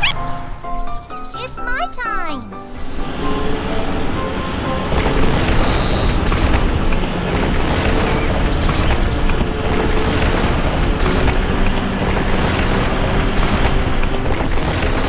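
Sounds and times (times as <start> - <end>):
heavy vehicle engine rumbling: 3.0 - 15.0.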